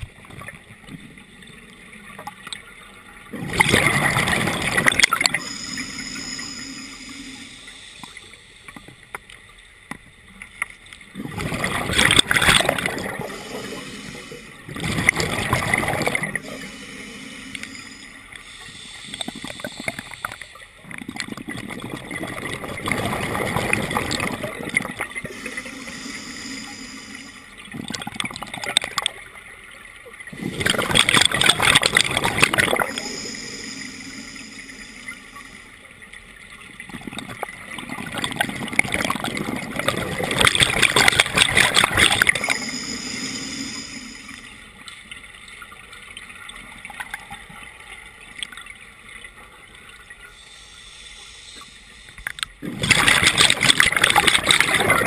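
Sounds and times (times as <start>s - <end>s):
exhaled bubbles surging: 3.3s - 8.0s, 11.1s - 18.4s, 19.1s - 29.1s, 30.3s - 35.7s, 36.8s - 44.5s, 52.6s - 55.0s
regulator hissing on inhalation: 4.8s - 8.8s, 12.4s - 20.6s, 25.2s - 27.6s, 30.4s - 35.8s, 40.5s - 44.6s, 50.3s - 52.4s.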